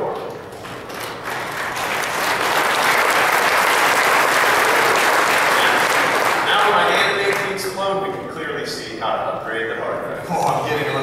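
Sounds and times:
audience applauding: 0.5 - 7.8.

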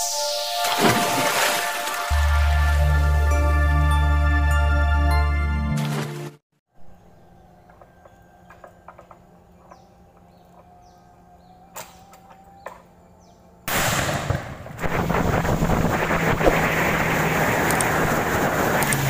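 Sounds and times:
wind and water spray rushing: 0.0 - 3.0, 14.8 - 19.0
outboard motor running at speed: 15.0 - 19.0
scattered clicks: 17.6 - 18.0, 18.8 - 19.0.

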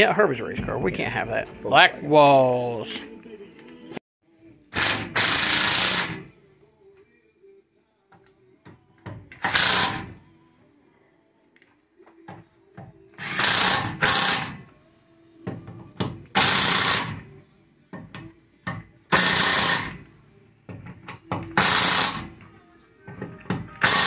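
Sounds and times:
impact wrench hammering: 18.0 - 20.0, 20.7 - 22.3, 23.6 - 24.0.

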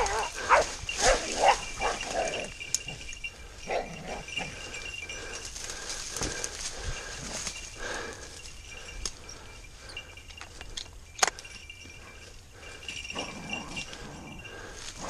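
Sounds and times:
rustle of dry brush: 0.0 - 3.1
distant dogs barking: 0.0 - 8.1.

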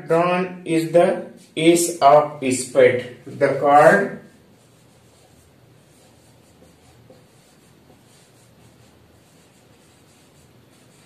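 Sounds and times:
marker scratching on whiteboard: 3.4 - 11.0.

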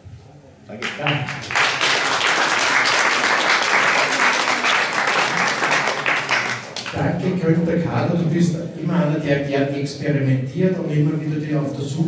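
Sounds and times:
audience applauding: 0.8 - 7.0.

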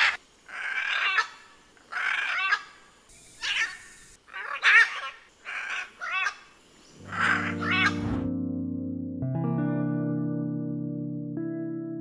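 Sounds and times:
macaws squawking: 0.0 - 8.2.

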